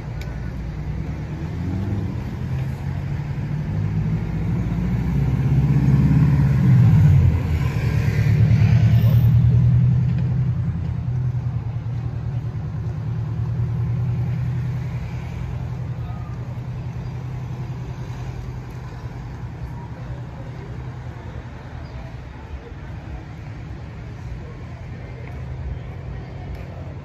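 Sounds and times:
vehicle engine passing by: 0.7 - 21.0.

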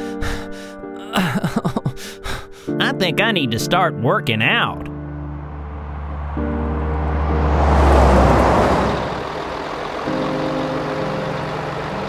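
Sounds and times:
steady engine hum: 4.9 - 12.0
cartoon vehicle whoosh: 5.6 - 9.4.

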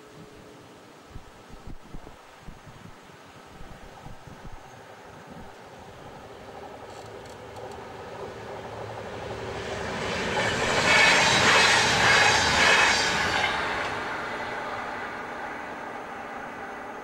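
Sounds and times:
diesel train passing: 5.6 - 17.0.

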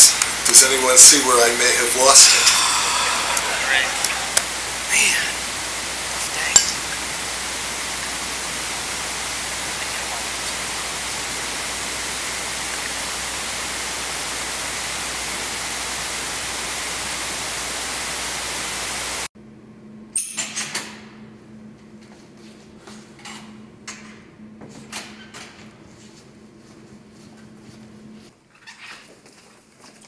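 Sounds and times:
loud static hiss: 0.0 - 19.3.

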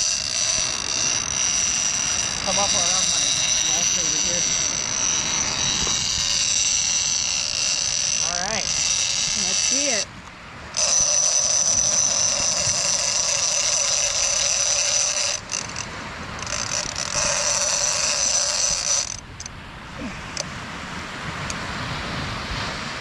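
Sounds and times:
fishing reel screaming: 0.0 - 10.1, 10.7 - 19.5.

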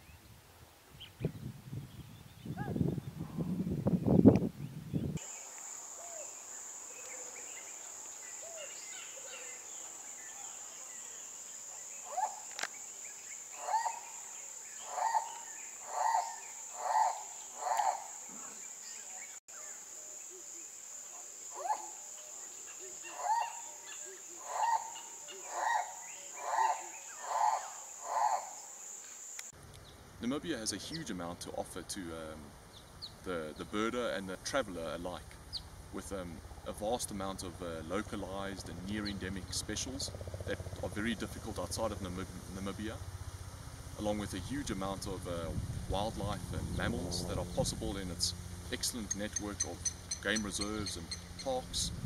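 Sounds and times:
bird short calls: 11.8 - 12.6, 13.4 - 19.4, 22.6 - 28.6
loud low rumble: 39.4 - 49.1.

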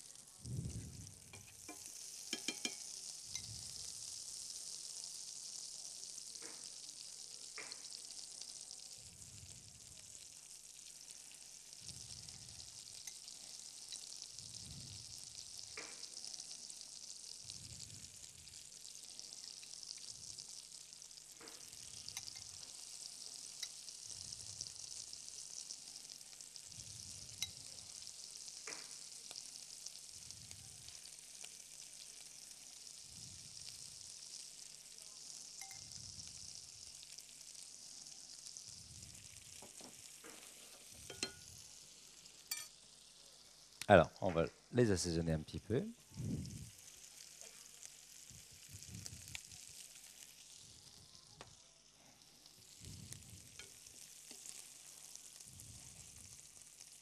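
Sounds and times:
offal frying in butter: 0.0 - 57.0
fat spattering pops: 7.5 - 7.9, 28.6 - 29.0.

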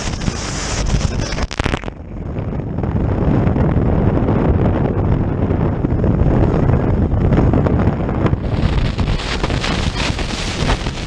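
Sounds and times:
rushing water and spray: 0.0 - 2.0, 8.4 - 11.0
wind buffeting microphone: 0.0 - 11.0.

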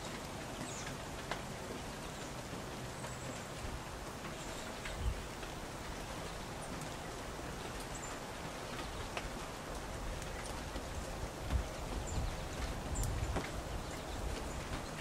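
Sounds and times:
light ticks: 0.0 - 2.4, 3.0 - 15.0
small birds chipping: 0.0 - 3.6, 10.1 - 15.0.

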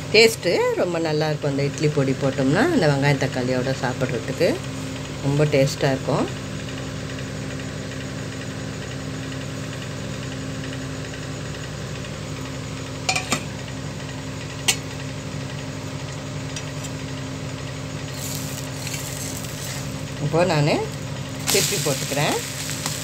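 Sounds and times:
steady machine hum: 0.0 - 23.0
soft hiss of batter cooking: 17.9 - 23.0.

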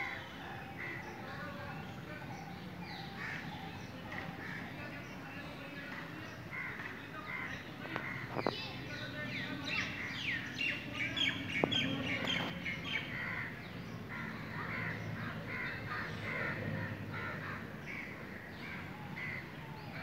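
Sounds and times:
crows cawing: 3.1 - 4.7, 6.5 - 8.5, 12.9 - 19.6.

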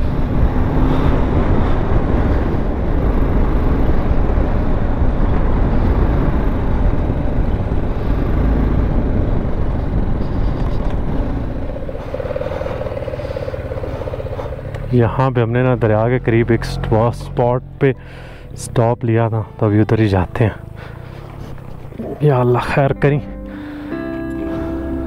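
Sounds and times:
wind noise on microphone: 0.0 - 12.4
motorcycle engine running: 0.0 - 25.0.

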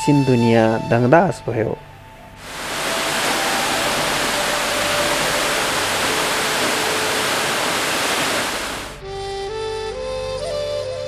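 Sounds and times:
waterfall rushing: 2.4 - 9.0.

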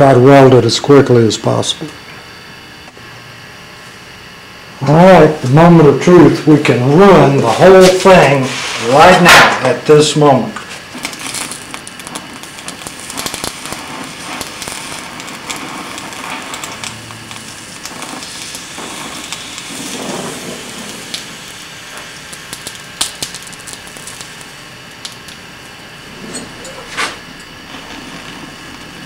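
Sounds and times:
gas welding torch hissing: 4.7 - 29.0
weld crackling and snapping: 10.6 - 25.8
sharp crack: 10.9 - 25.5.

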